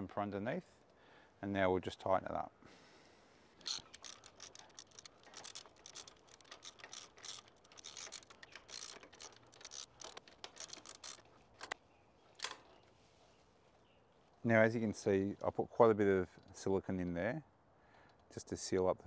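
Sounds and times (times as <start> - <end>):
spanner clicking and scraping: 3.6 - 11.8.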